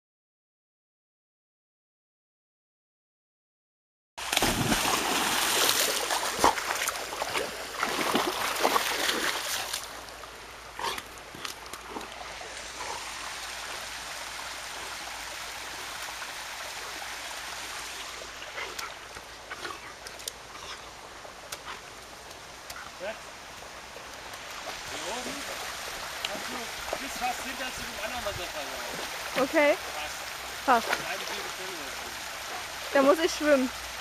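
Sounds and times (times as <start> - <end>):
water splashing hard: 4.2 - 10.0
small splashes and knocks: 4.2 - 10.2
small stream running: 4.2 - 34.0.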